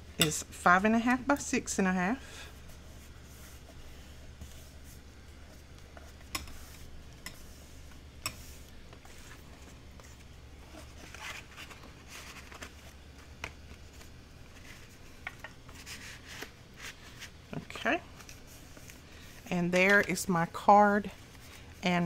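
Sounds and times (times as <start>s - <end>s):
paper rustling: 8.8s - 17.4s.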